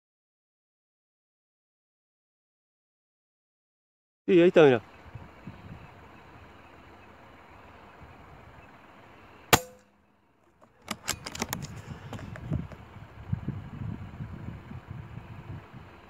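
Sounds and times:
air rifle shot: 0:09.5 - 0:09.9.

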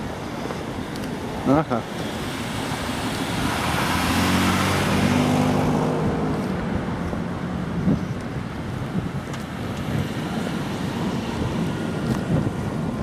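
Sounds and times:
car driving past: 0:02.5 - 0:07.7.

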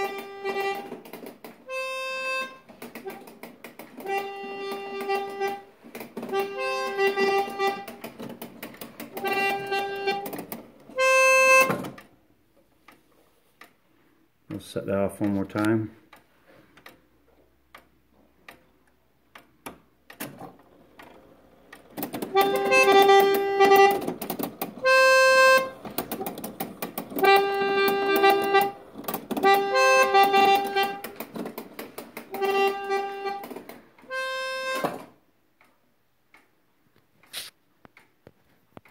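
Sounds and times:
reed horns playing a tune: 0:00.0 - 0:01.0, 0:01.6 - 0:03.4, 0:04.0 - 0:08.0, 0:09.2 - 0:10.3, 0:11.0 - 0:11.7, 0:22.3 - 0:24.2, 0:24.8 - 0:26.2, 0:27.2 - 0:31.2, 0:32.3 - 0:35.1
clock mechanism clicking: 0:02.4 - 0:13.8, 0:14.6 - 0:38.9.

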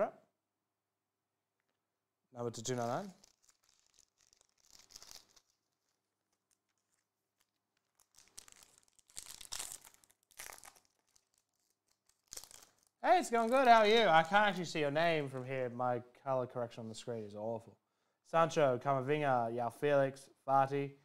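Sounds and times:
foil wrapper crinkling: 0:02.6 - 0:14.3
foil wrapper tearing: 0:02.7 - 0:14.0.

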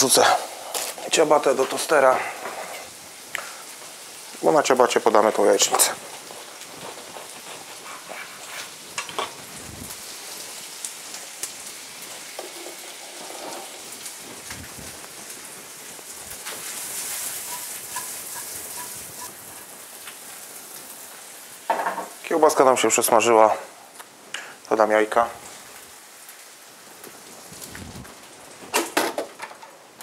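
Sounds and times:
food sizzling in a pan: 0:00.0 - 0:30.0
kitchen clicks and knocks: 0:21.7 - 0:22.2, 0:28.7 - 0:29.8.

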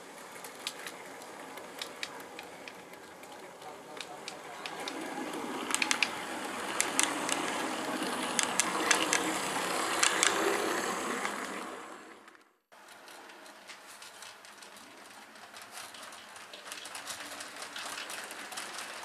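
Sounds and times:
model train motor and wheel rumble: 0:00.0 - 0:19.0
wheels clicking on track: 0:00.0 - 0:19.0.

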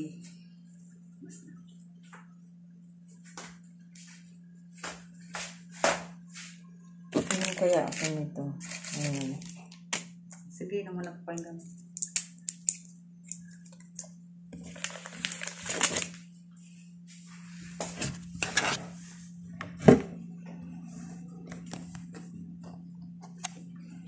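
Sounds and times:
steady low hum: 0:00.0 - 0:24.0
objects being handled: 0:07.1 - 0:10.0.

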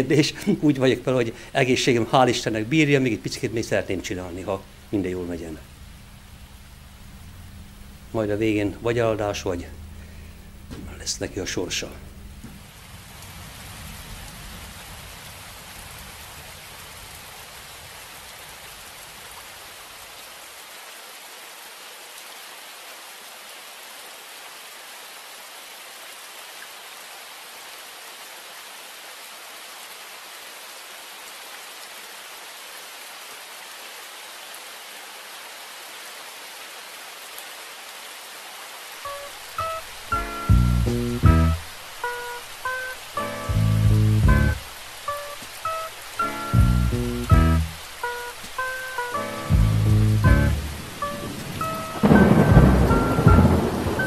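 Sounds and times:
rain on wet pavement: 0:00.0 - 0:54.0
low rumble: 0:09.6 - 0:11.1.

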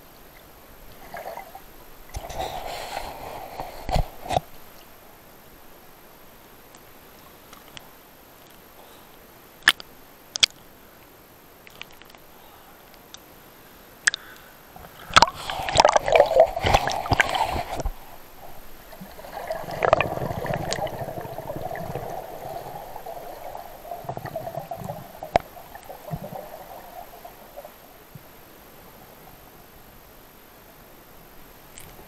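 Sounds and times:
water splashing: 0:14.1 - 0:28.1
underwater bubbling: 0:14.1 - 0:28.5.

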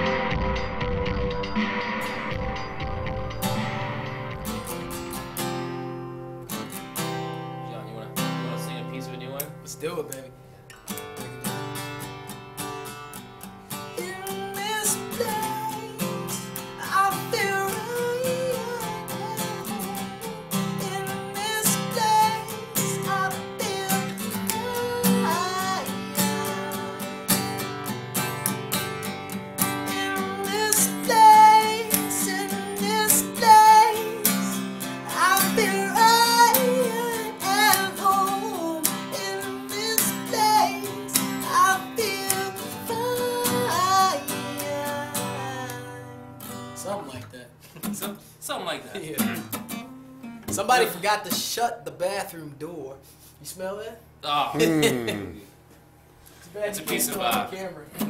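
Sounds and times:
acoustic guitar strumming: 0:00.0 - 0:51.8
man singing: 0:14.0 - 0:27.0, 0:29.9 - 0:46.1, 0:54.6 - 0:55.4.

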